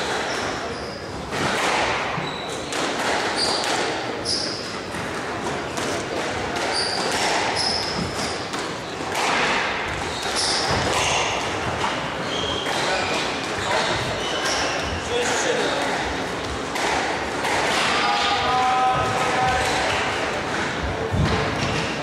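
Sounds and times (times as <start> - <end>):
squash ball smacking rackets and walls: 0.0 - 22.0
shoes squeaking on wooden floor: 2.2 - 2.7, 6.7 - 8.4, 9.9 - 16.2.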